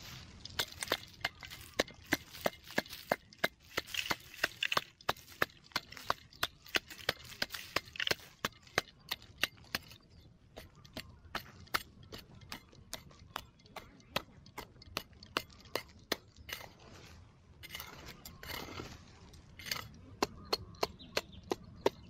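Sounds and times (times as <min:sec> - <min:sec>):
metal shovel scraping stony soil: 0:00.0 - 0:10.0, 0:14.6 - 0:20.8.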